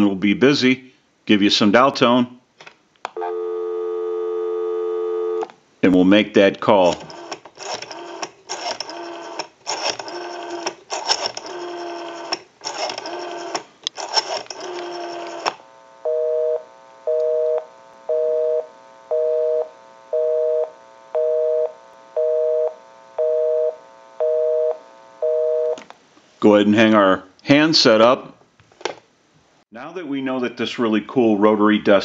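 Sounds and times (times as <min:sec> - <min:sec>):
rotary phone dial whirring: 0:06.9 - 0:15.6
telephone busy signal beeps: 0:16.1 - 0:25.8.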